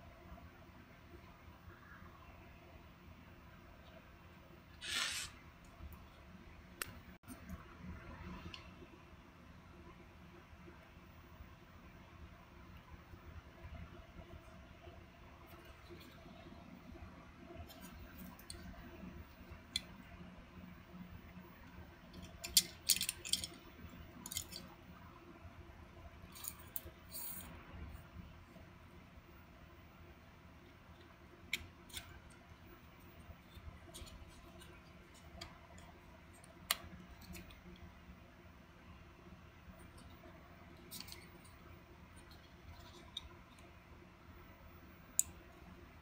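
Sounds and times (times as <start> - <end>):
plastic parts clicking: 22.1 - 24.7.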